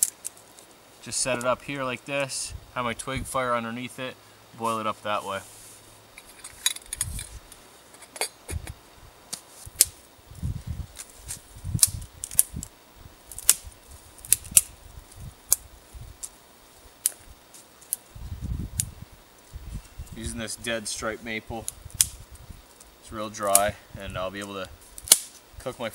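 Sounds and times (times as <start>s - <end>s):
sticks snapping: 11.0s - 12.7s, 13.3s - 14.7s, 21.6s - 22.2s, 25.0s - 25.4s.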